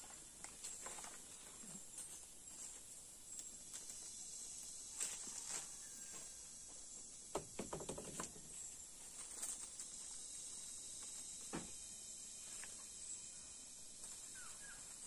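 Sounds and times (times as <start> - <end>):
leaves and twigs rustling: 0.0 - 6.6, 8.0 - 11.4, 13.8 - 15.0
insects droning: 0.0 - 15.0.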